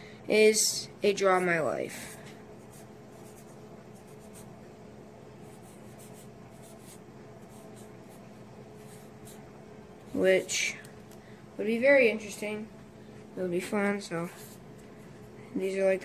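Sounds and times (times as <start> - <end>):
steady low hum: 0.0 - 16.0
marker scratching on paper: 2.6 - 4.5, 5.4 - 9.4.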